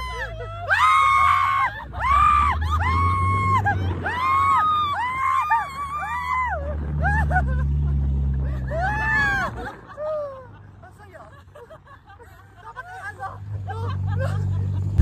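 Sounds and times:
people screaming: 0:00.0 - 0:07.7, 0:08.5 - 0:10.6
vehicle engine humming: 0:00.0 - 0:11.2, 0:12.1 - 0:15.0.

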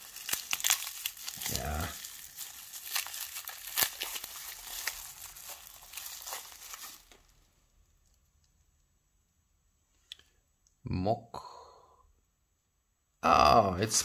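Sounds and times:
plastic wrapping crinkling: 0:00.0 - 0:08.2.

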